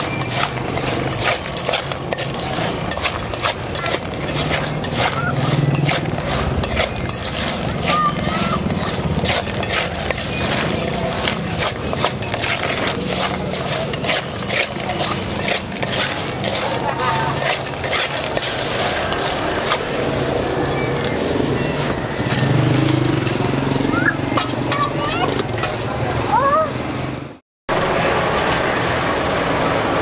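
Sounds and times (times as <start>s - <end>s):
scattered clatter: 0.0s - 20.0s, 20.6s - 26.1s
chatter of passers-by: 0.0s - 30.0s
engines humming: 0.0s - 30.0s.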